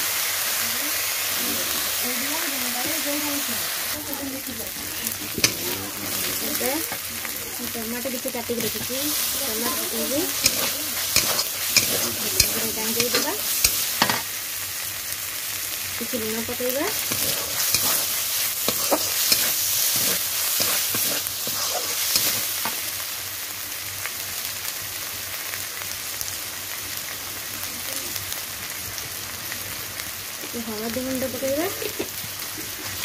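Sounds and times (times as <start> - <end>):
tomatoes sizzling in hot oil: 0.0 - 33.0
metal spatula scraping pan: 8.6 - 14.2, 16.9 - 22.8.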